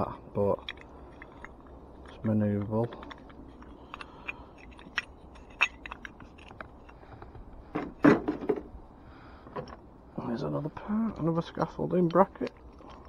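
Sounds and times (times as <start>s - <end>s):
scrap metal clinking: 2.8s - 7.0s.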